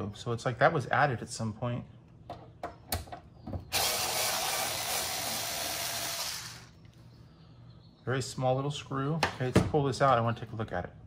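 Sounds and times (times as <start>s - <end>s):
electric screwdriver running: 3.7s - 6.7s.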